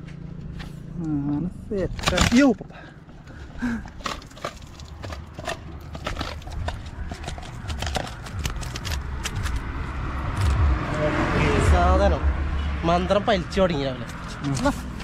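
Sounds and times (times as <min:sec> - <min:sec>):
low rumble: 0:06.0 - 0:12.7.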